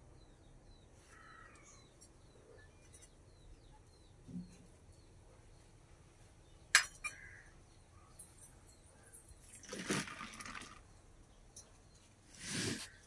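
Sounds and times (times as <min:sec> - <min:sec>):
steel vessel clinking: 0:06.7 - 0:07.2.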